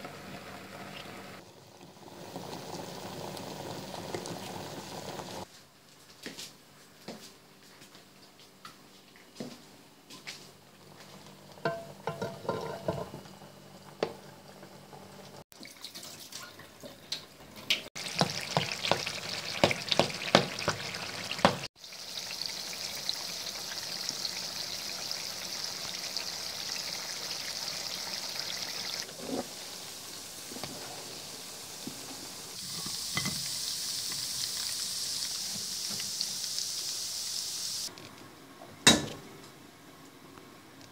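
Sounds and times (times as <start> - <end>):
potatoes frying in hot oil: 0.0 - 5.4, 17.7 - 37.9.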